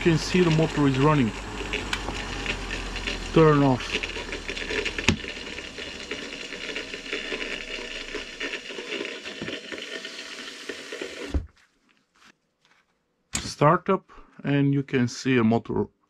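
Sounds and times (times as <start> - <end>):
electric motor whirring and rattling: 0.0 - 11.5.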